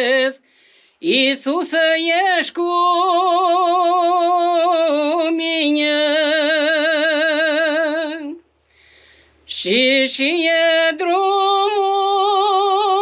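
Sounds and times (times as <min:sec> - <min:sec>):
woman singing unaccompanied: 0:00.0 - 0:00.4, 0:01.0 - 0:08.5, 0:09.5 - 0:13.0
short breath: 0:00.4 - 0:01.0, 0:08.6 - 0:09.5.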